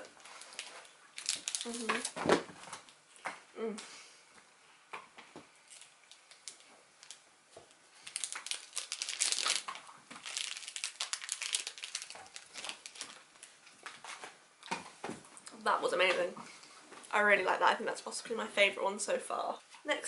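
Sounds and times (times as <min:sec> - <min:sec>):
plastic wrapper crinkling: 0:00.2 - 0:03.0, 0:05.6 - 0:14.4.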